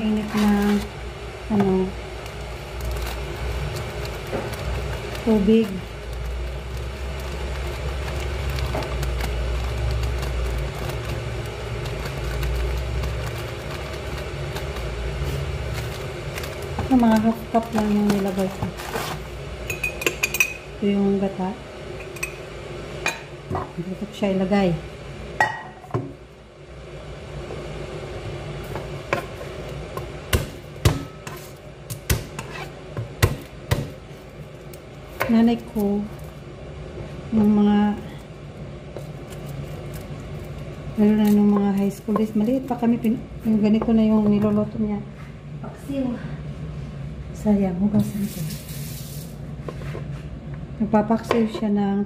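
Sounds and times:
low motor rumble: 0.0s - 19.7s
steady low hum: 0.0s - 52.0s
foil packet crinkling: 2.1s - 19.4s, 39.0s - 43.5s.

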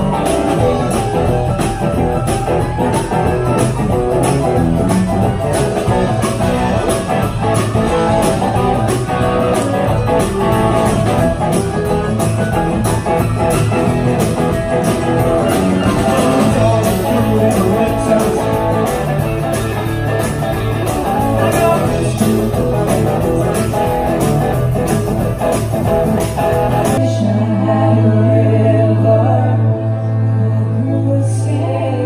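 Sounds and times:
live rock band playing: 0.0s - 28.8s
person singing: 15.8s - 19.9s, 21.0s - 24.0s, 27.0s - 32.0s.

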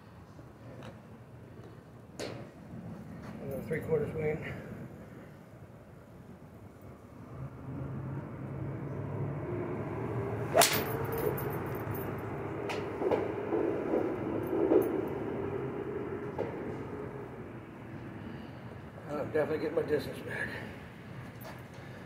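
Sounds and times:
steady background hum: 0.0s - 22.0s
golf club striking ball: 10.5s - 11.4s.

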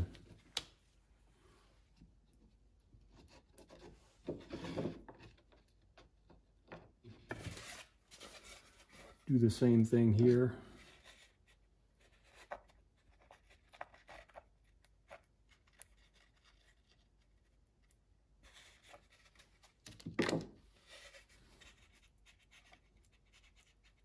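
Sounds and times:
glue brush scratching on wood: 20.8s - 24.0s.

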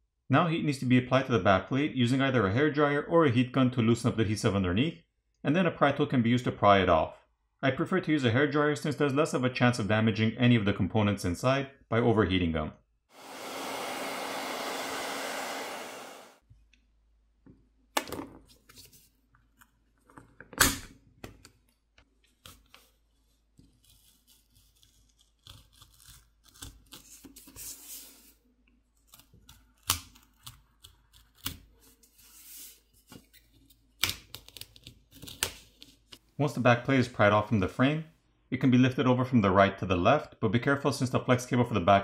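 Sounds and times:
hairdryer blowing: 13.2s - 16.4s.

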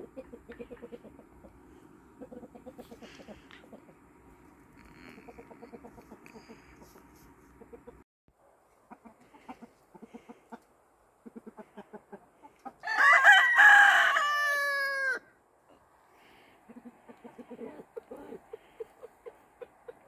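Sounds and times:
chickens clucking: 0.0s - 8.0s, 8.7s - 12.8s, 16.5s - 20.0s
rooster crowing: 12.8s - 15.3s.

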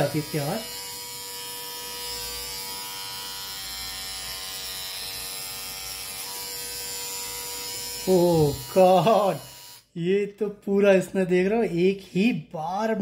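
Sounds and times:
electric body trimmer buzzing: 0.0s - 10.0s.

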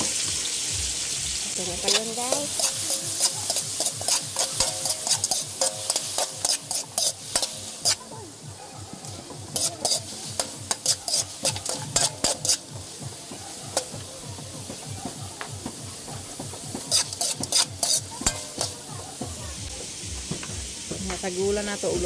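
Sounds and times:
chicken sizzling in oil: 0.0s - 22.0s
metal ladle scraping a wok: 1.8s - 8.0s, 9.0s - 14.0s, 16.0s - 18.8s.

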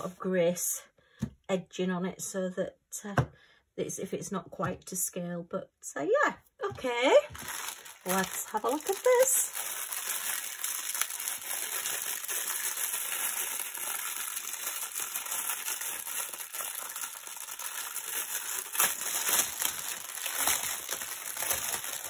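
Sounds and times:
plastic bag crinkling: 7.3s - 22.0s
small objects rattling in bag: 7.4s - 22.0s.

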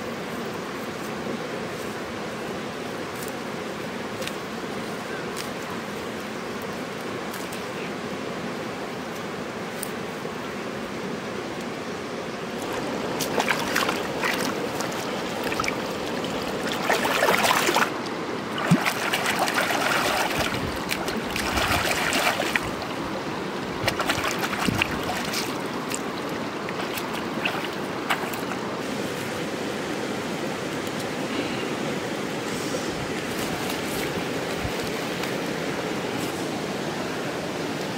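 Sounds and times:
river flowing: 0.0s - 37.9s
splashing of rinsed greens: 12.6s - 18.0s, 18.6s - 22.9s, 23.8s - 28.6s.

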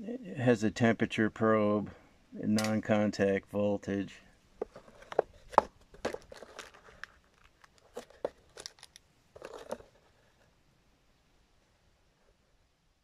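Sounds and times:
knocks and scrapes on cardboard box: 4.6s - 7.0s
crinkling rustle: 4.6s - 10.6s.

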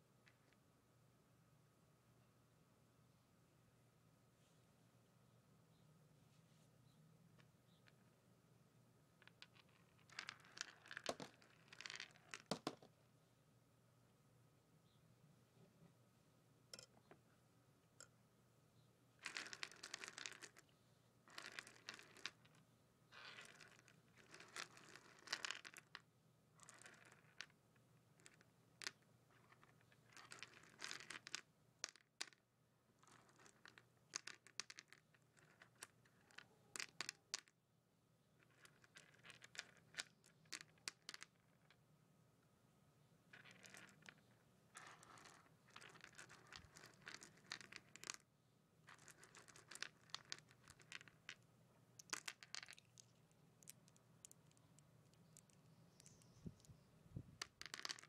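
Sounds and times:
candies clicking and rustling: 44.8s - 48.2s, 48.9s - 51.4s, 52.0s - 56.8s, 57.4s - 58.0s.

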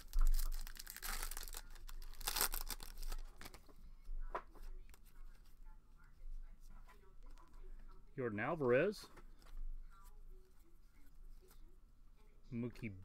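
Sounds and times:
foil wrapper ripping and crinkling: 0.0s - 3.6s.

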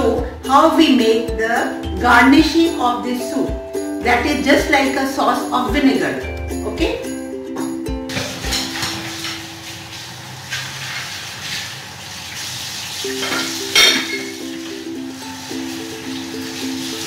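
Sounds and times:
soft background music: 0.0s - 10.2s, 12.9s - 17.0s
water boiling in a pot: 8.2s - 17.0s.

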